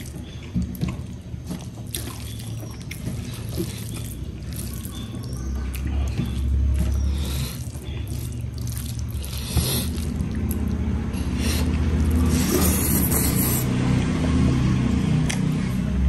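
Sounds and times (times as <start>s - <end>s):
chewing food: 0.0s - 15.8s
wet mouth clicks and smacks: 9.7s - 14.2s, 15.2s - 15.6s.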